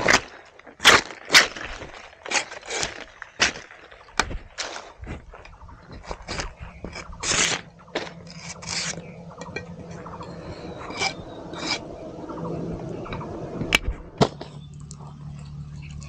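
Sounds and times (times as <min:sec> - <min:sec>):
scraping and rasping of leaf stalk: 0:00.0 - 0:03.8, 0:05.9 - 0:12.0.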